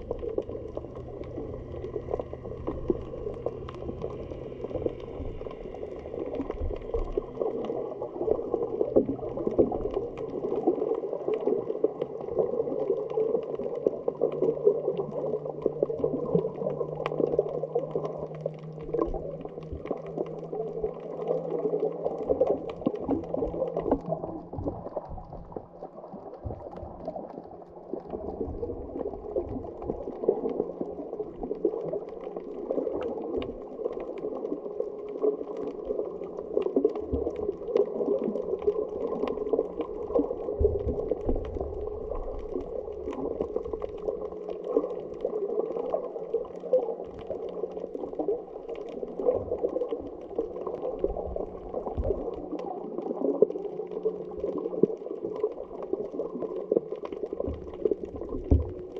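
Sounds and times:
faint low hum: 0.0s - 11.1s
underwater bubbling: 0.0s - 58.9s.

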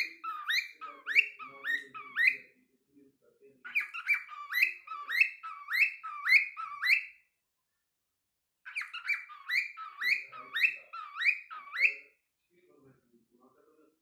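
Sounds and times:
cockatiel whistling: 0.0s - 2.4s, 3.7s - 7.2s, 8.7s - 12.1s.

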